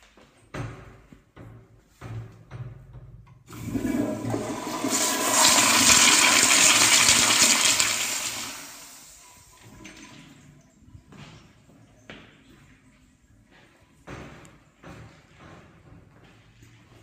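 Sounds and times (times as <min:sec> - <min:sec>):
toilet flushing: 0:03.5 - 0:10.6.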